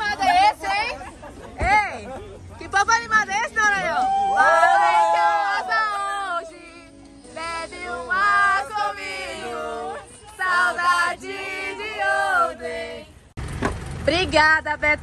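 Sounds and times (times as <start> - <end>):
group singing and chanting: 4.5 - 13.3.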